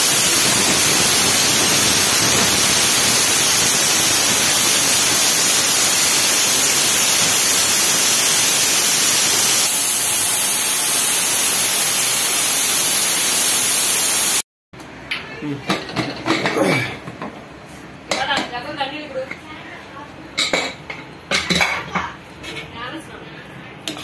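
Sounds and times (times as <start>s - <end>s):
pressure cooker steam hiss: 0.0s - 14.4s.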